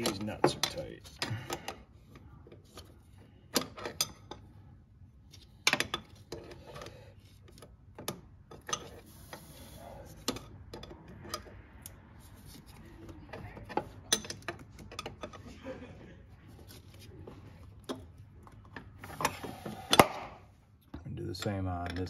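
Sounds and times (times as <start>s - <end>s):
wrenches clicking against metal: 0.0s - 1.8s, 13.3s - 15.5s, 21.1s - 22.0s.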